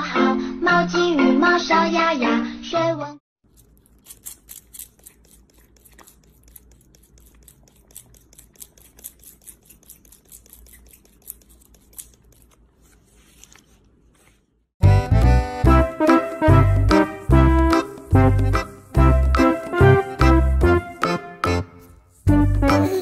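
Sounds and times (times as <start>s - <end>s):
brush stroking cat fur: 3.5s - 14.4s, 16.0s - 19.8s, 22.0s - 22.6s.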